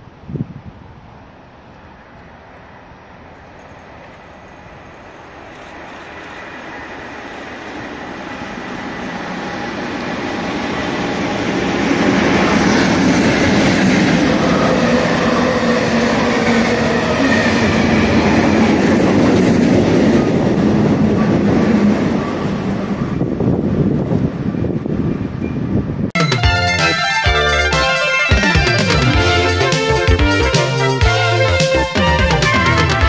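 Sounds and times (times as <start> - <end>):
diesel locomotive passing: 0.0 - 33.0
track machines rolling by: 1.8 - 33.0.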